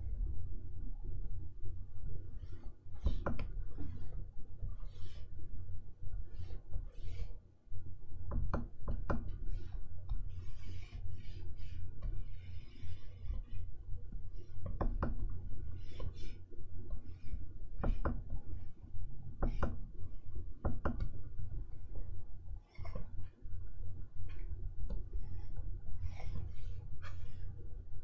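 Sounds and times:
steady low rumble: 0:00.0 - 0:02.4
pen scratching on screen: 0:02.4 - 0:04.2, 0:04.8 - 0:05.3, 0:06.2 - 0:07.4, 0:09.0 - 0:13.7, 0:14.4 - 0:18.7, 0:24.3 - 0:27.6.

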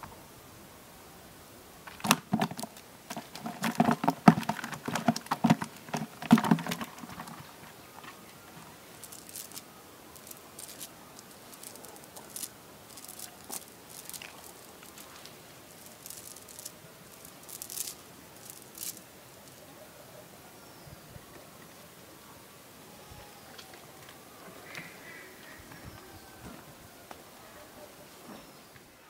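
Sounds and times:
fish splashing in bucket: 0:01.9 - 0:07.5
knocks against bucket walls: 0:01.9 - 0:08.2
faint rustling and ticking: 0:01.9 - 0:19.6.

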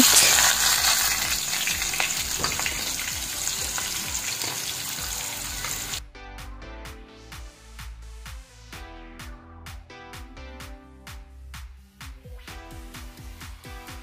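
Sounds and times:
onions sizzling in hot oil: 0:00.0 - 0:06.0
background music: 0:00.0 - 0:14.0.

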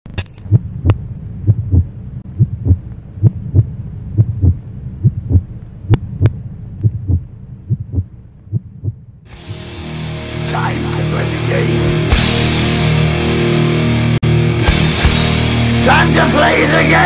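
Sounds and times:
steady low hum: 0:00.1 - 0:12.0
heartbeat thumps: 0:00.4 - 0:09.7.

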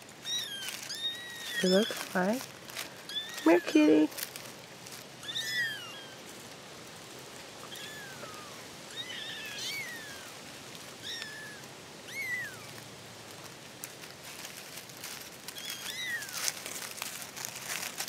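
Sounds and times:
kittens mewing: 0:02.9 - 0:04.1, 0:05.2 - 0:06.3, 0:07.6 - 0:10.4, 0:11.0 - 0:12.8, 0:15.5 - 0:16.6.

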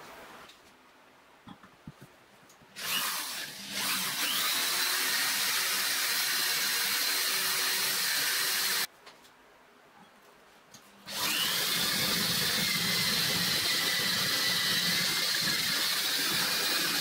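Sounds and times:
drill boring into metal: 0:02.8 - 0:08.9, 0:11.1 - 0:17.0.

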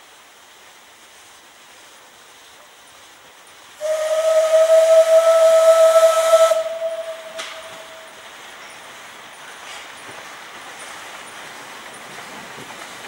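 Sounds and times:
steam hiss: 0:00.0 - 0:13.0
steam locomotive whistle: 0:03.8 - 0:08.3.

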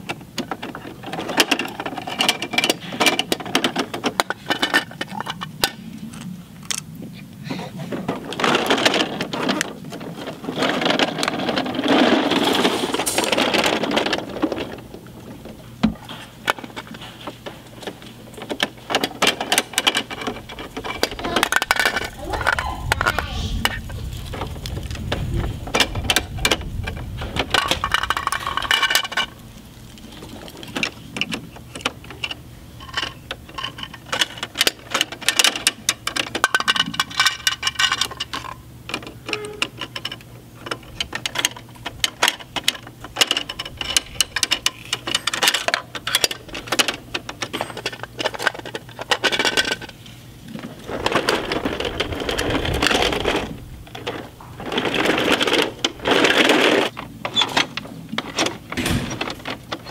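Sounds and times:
toy bins knocking plastic: 0:17.8 - 0:23.8.

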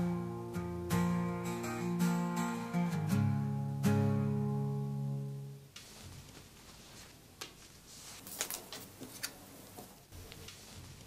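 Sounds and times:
acoustic guitar chord: 0:00.0 - 0:05.6
soft rustling of fabric: 0:05.7 - 0:11.0.

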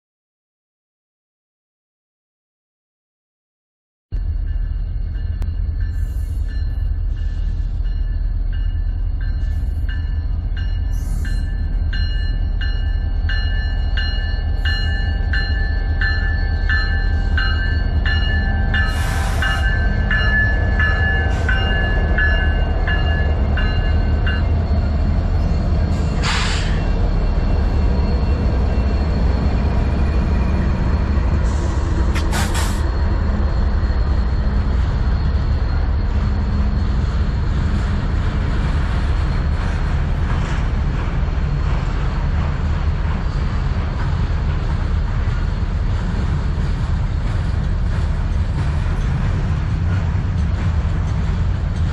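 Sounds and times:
bell ringing: 0:04.2 - 0:24.8
freight train rumbling past: 0:04.2 - 0:51.9.

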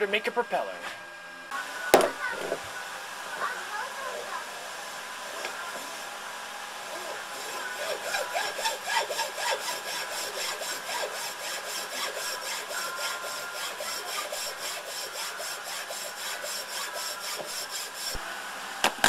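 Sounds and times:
hacksaw cutting plastic: 0:02.0 - 0:02.7, 0:06.9 - 0:18.2.

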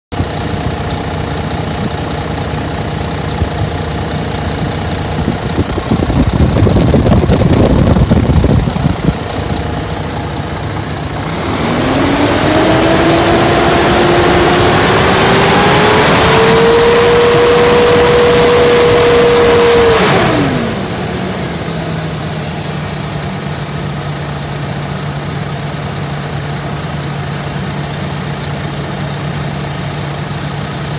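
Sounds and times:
diesel engine idling and revving: 0:00.1 - 0:30.9.

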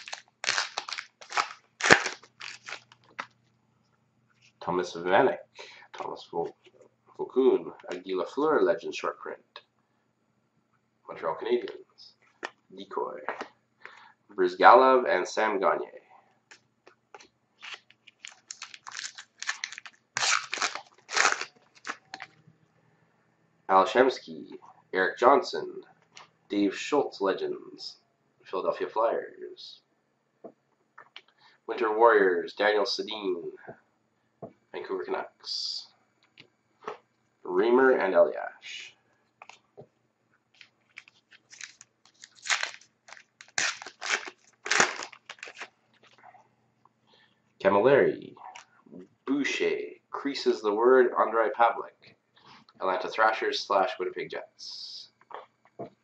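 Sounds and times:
wrapper crinkling and tearing: 0:00.0 - 0:03.3, 0:17.6 - 0:22.3, 0:40.6 - 0:46.2.

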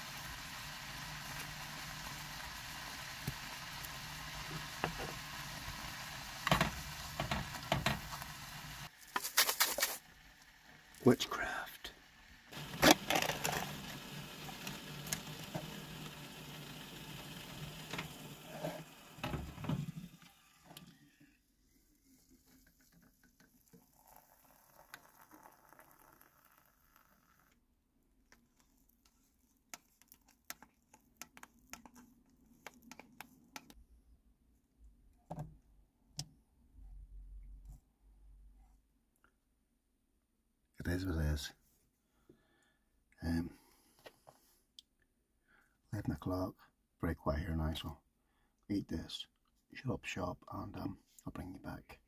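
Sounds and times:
steady hiss: 0:00.0 - 0:10.1
water poured from a kettle: 0:00.0 - 0:11.1, 0:22.1 - 0:27.6.

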